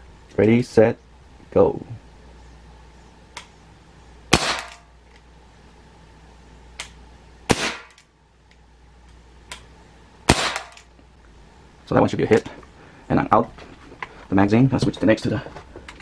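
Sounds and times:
air pistol shots: 4.3 - 4.9, 7.5 - 8.0, 10.3 - 10.9.

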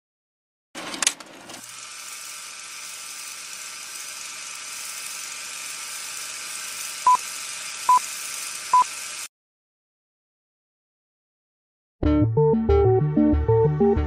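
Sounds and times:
film projector whirring: 0.8 - 9.3.

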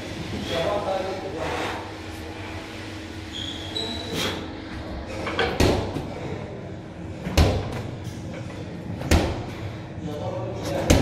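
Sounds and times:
short squeak: 3.3 - 4.4.

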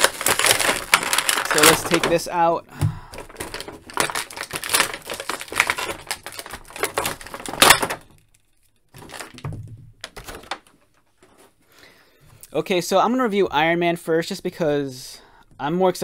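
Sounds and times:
loud plastic crack: 0.0 - 10.9
plastic packaging crackling: 0.0 - 11.5.

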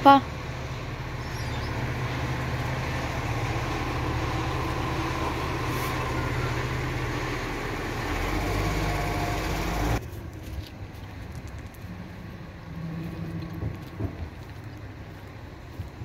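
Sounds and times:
diesel truck engine idling: 0.0 - 10.0.

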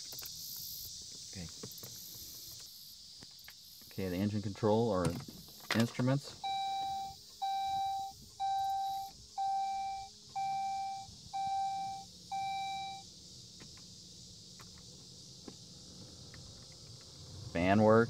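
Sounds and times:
dashboard warning beeps: 6.4 - 13.1.

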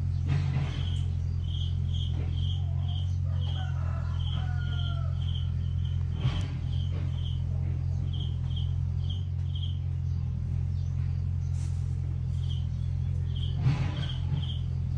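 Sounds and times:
steady low hum: 0.0 - 14.9
insect chirping: 0.7 - 10.0, 12.3 - 14.9.

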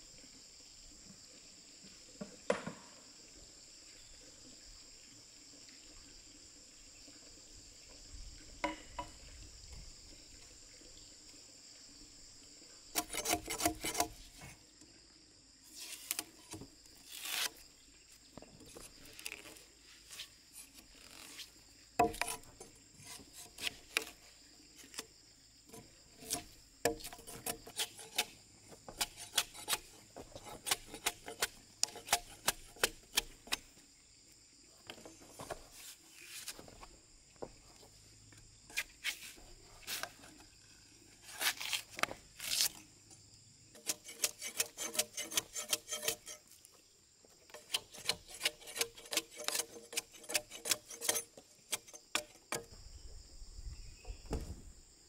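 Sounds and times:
insects buzzing: 0.0 - 55.0
machete scraping and chopping bark: 12.9 - 14.6, 15.7 - 17.8, 18.6 - 33.8, 38.6 - 43.0, 43.7 - 46.7, 47.4 - 52.8.

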